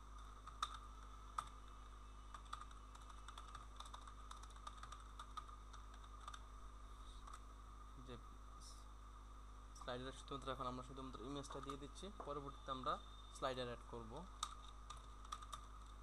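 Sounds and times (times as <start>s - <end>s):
steady low hum: 0.0s - 16.0s
keyboard typing: 0.2s - 1.6s, 2.3s - 6.4s, 11.1s - 11.9s, 14.3s - 16.0s.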